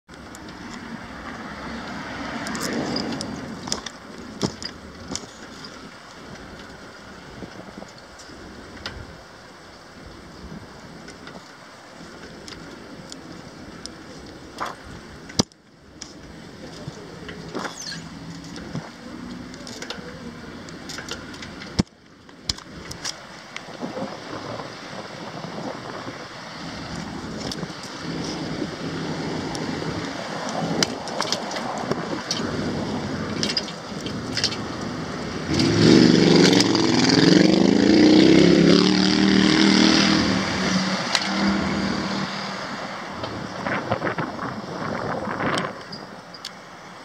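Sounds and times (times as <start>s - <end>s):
car passing: 0.3s - 4.6s, 23.9s - 45.8s
sharp clicks and rattles: 33.2s - 34.9s.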